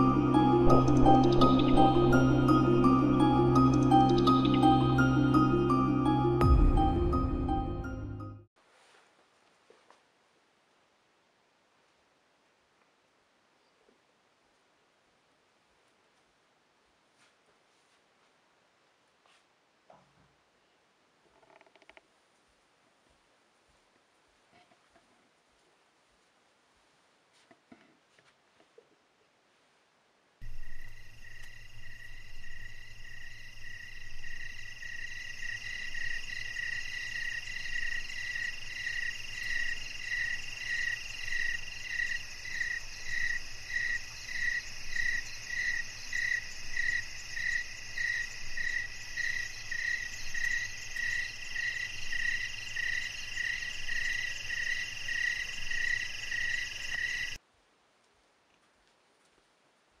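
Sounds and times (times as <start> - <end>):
frogs chirring: 30.4 - 57.4
insects chirring: 30.4 - 57.4.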